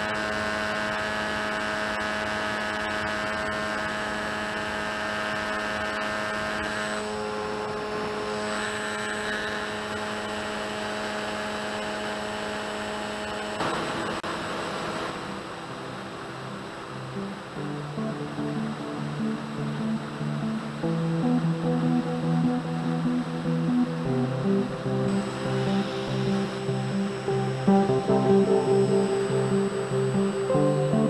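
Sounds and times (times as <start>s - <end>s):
electric propeller motor whining: 0.0s - 31.0s
rush of air noise: 13.6s - 31.0s.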